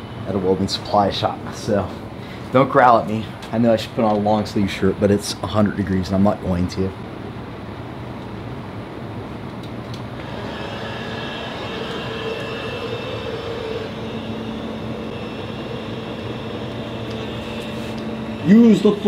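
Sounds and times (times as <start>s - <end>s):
machine hum: 0.0s - 5.5s, 6.9s - 19.0s
shop machinery whirring: 10.1s - 19.0s.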